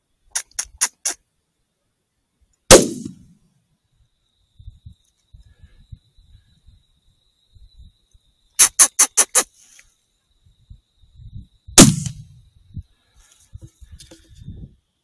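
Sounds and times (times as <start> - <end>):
quick sharp calls: 0.3 - 1.2, 8.6 - 9.8
rifle shot with low boom: 2.7 - 3.4, 11.8 - 12.4.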